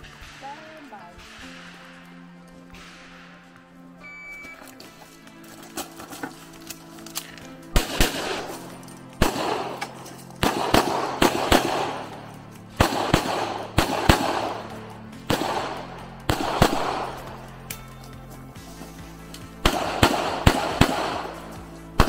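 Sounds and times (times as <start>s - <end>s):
pistol shots with echo: 0.0s - 3.8s, 7.3s - 17.9s, 19.3s - 22.0s.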